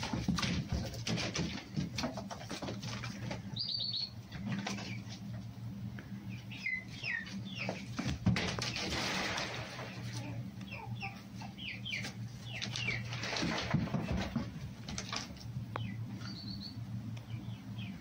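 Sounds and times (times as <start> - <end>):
steady low hum: 0.0 - 18.0
small birds chirping: 3.0 - 5.3, 6.0 - 8.8, 10.2 - 13.4, 15.6 - 18.0.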